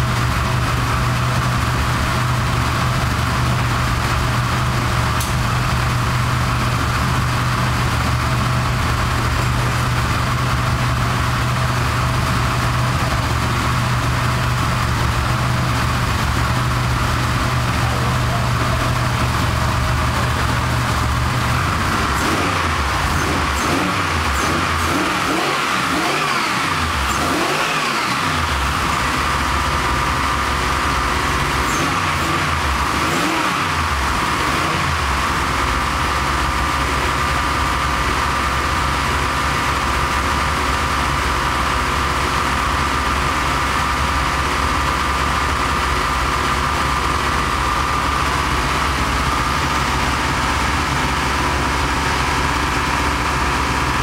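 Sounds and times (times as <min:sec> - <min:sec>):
car engine revving and idling: 0:00.0 - 0:54.0
high whine: 0:45.3 - 0:54.0.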